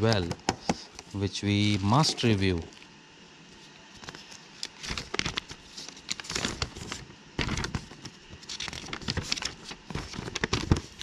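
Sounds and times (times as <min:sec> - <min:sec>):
paper rustling and crinkling: 0:03.5 - 0:11.0.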